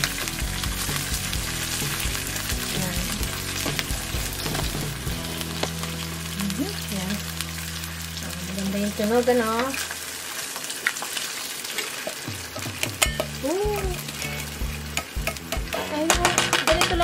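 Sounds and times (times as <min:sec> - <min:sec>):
corn sizzling in a frying pan: 0:00.0 - 0:17.0
wooden spoon scraping a pan: 0:13.8 - 0:17.0.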